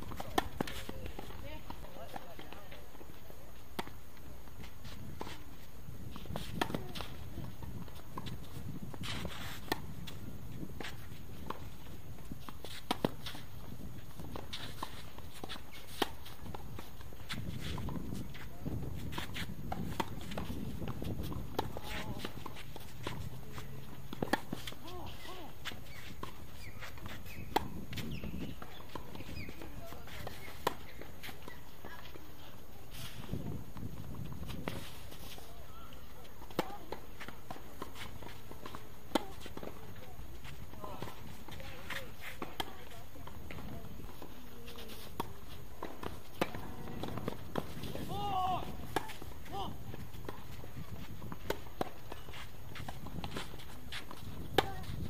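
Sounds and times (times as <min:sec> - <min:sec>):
outdoor background noise: 0:00.0 - 0:55.0
shoes scuffing on court: 0:00.0 - 0:55.0
racket hitting tennis ball: 0:06.1 - 0:08.4, 0:17.2 - 0:31.6, 0:36.4 - 0:43.7, 0:44.7 - 0:55.0
tennis ball bouncing: 0:06.3 - 0:32.0, 0:36.4 - 0:44.3, 0:44.9 - 0:55.0.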